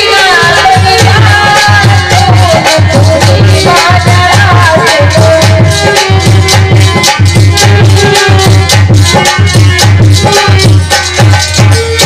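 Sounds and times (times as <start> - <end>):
person singing a melody: 0.0 - 6.4
hand drum beat: 0.0 - 12.0.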